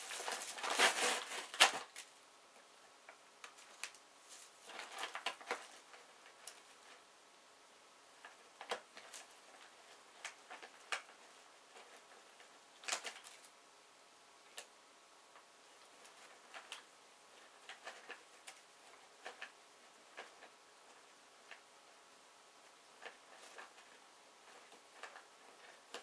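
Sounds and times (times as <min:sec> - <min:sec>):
plastic bag crinkling: 0:00.0 - 0:02.1.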